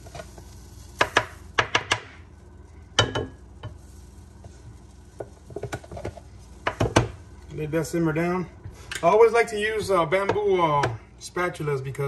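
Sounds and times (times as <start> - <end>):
utensil knocking on frying pan: 1.0 - 2.2, 3.0 - 3.7, 5.2 - 7.2.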